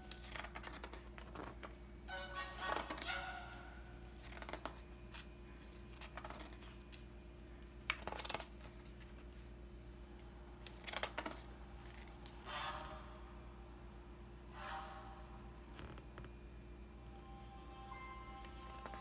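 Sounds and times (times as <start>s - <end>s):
book pages turning: 0.0s - 3.2s, 3.9s - 9.5s, 10.6s - 13.0s, 15.7s - 16.3s, 18.4s - 19.0s
faint low hum: 0.0s - 19.0s.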